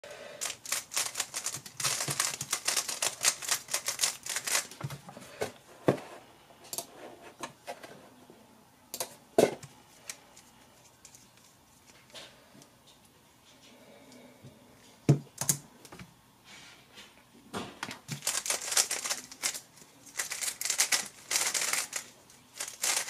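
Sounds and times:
rapid plastic clicking of puzzle cube: 0:00.4 - 0:04.8, 0:18.1 - 0:23.0.

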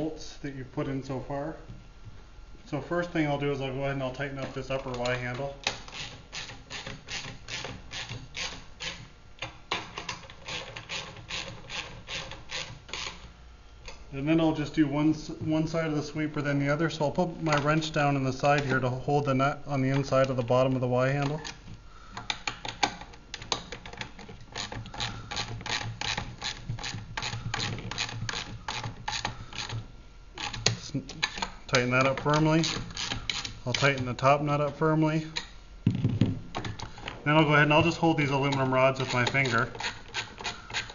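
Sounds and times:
ratchet wrench clicking: 0:05.9 - 0:09.0, 0:32.3 - 0:33.9.

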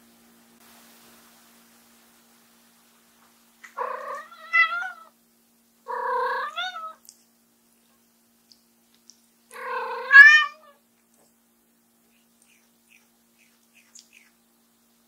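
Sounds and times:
cat meowing: 0:03.7 - 0:05.1, 0:05.9 - 0:07.0, 0:09.5 - 0:10.8.

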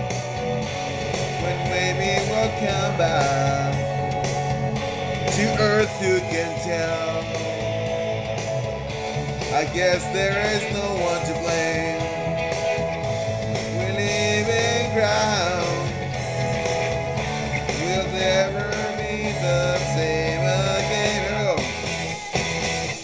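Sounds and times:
rock backing track: 0:00.0 - 0:23.0
man singing: 0:01.4 - 0:03.9, 0:05.3 - 0:07.5, 0:09.5 - 0:12.3, 0:13.6 - 0:16.1, 0:17.7 - 0:21.8.

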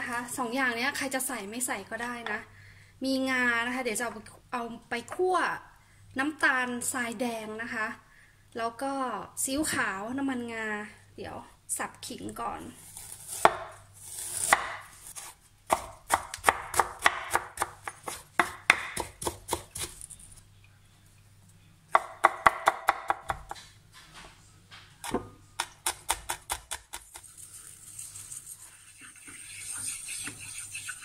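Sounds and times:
cleaver chopping on wooden board: 0:15.7 - 0:19.9, 0:22.0 - 0:23.6.

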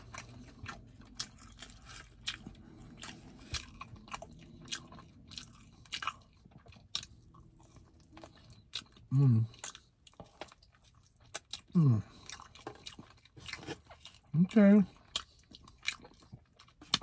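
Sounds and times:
chewing crispy meat: 0:00.0 - 0:17.0.

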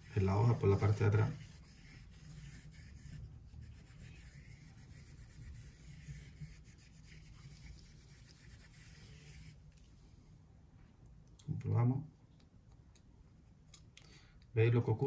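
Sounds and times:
knife rubbing on whetstone: 0:00.0 - 0:09.6.

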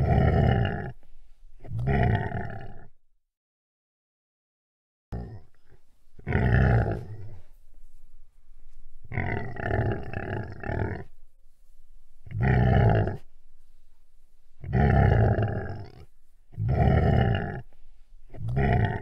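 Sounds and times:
large animal deep calls: 0:00.0 - 0:01.0, 0:01.6 - 0:02.9, 0:05.2 - 0:07.4, 0:09.1 - 0:11.2, 0:12.2 - 0:13.3, 0:14.6 - 0:17.7, 0:18.3 - 0:19.0.

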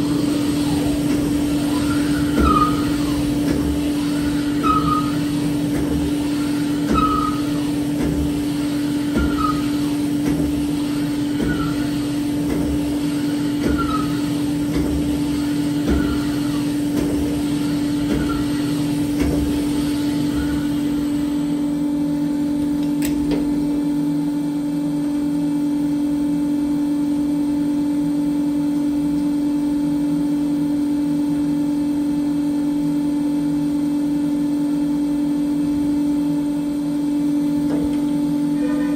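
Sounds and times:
machine motor hum: 0:00.0 - 0:26.0.

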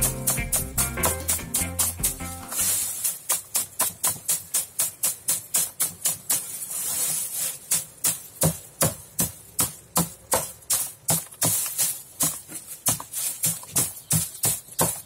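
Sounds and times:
stalks tapping in plastic tub: 0:00.0 - 0:06.5
dry stems rustling: 0:00.1 - 0:15.0.

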